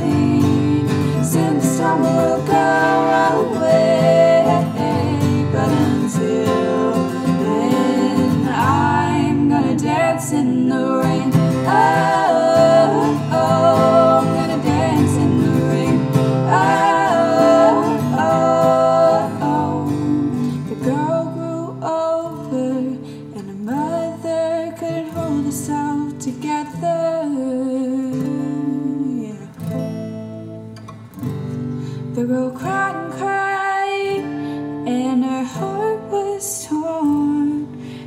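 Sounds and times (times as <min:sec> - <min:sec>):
layered vocal harmonies: 0:00.0 - 0:26.0
acoustic guitar accompaniment: 0:00.0 - 0:38.0.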